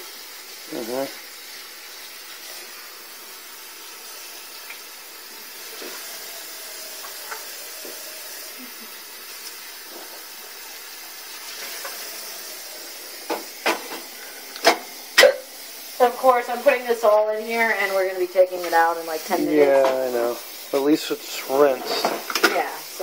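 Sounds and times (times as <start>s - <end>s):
tap water running into cup: 0.0s - 23.0s
dishes clattering: 13.2s - 15.4s, 21.7s - 22.7s
dishes clinking: 21.8s - 22.6s.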